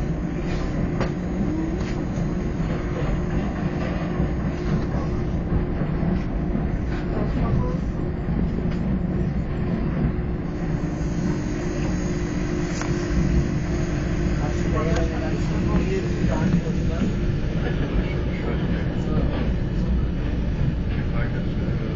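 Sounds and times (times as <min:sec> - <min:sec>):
train running rumble: 0:00.0 - 0:21.9.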